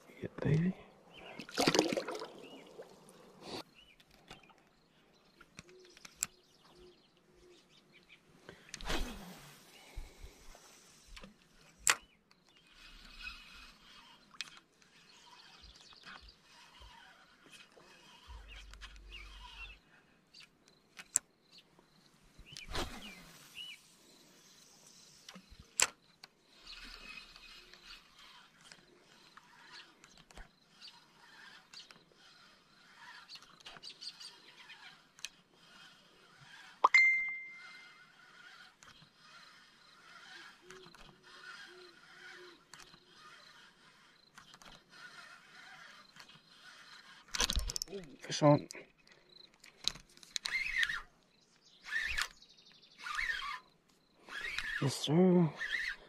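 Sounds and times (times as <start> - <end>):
faint bird chirping: 0.0 - 56.0.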